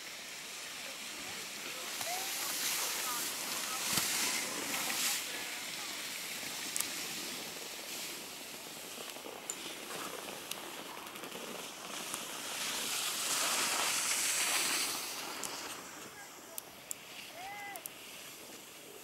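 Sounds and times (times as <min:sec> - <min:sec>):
skis scraping over snow: 0:00.0 - 0:19.0
faint clicks: 0:06.5 - 0:07.1.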